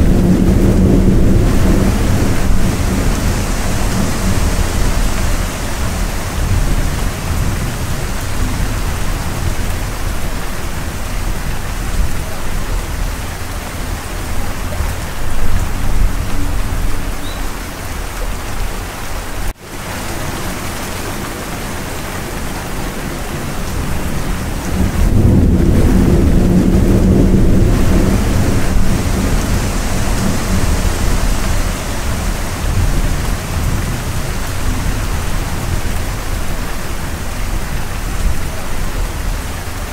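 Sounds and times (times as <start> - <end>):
heavy rain: 0.0 - 39.9
thunder rumbling: 0.0 - 39.9.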